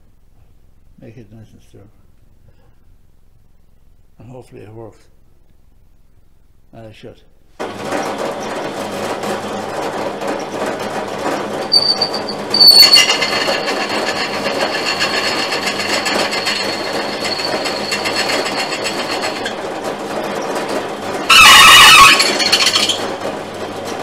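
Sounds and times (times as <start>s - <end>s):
drill bit squealing on metal: 11.7s - 19.6s, 21.2s - 23.1s
drill motor humming: 11.7s - 20.1s.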